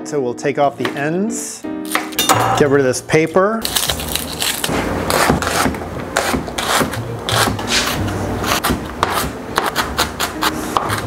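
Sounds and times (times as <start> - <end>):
shallot crunching: 3.6 - 5.6
knife chopping on cutting board: 5.1 - 11.0.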